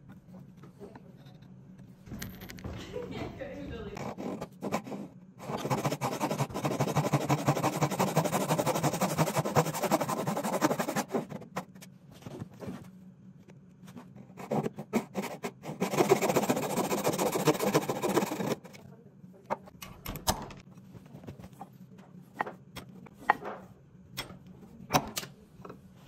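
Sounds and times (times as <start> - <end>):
hand saw cutting wood: 4.0 - 11.6, 14.4 - 18.6.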